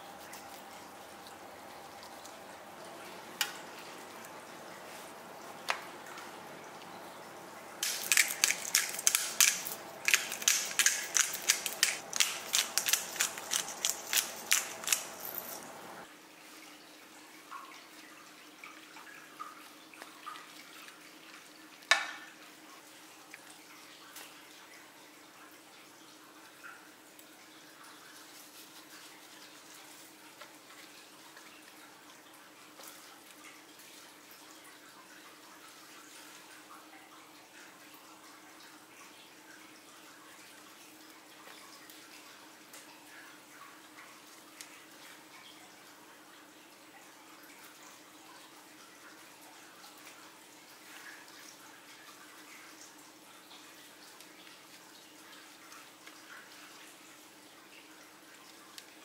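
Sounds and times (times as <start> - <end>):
hands rubbing wet meat: 0.0 - 16.0
spice shaker tapping: 7.8 - 15.7
grinders crushing grains: 7.8 - 16.0.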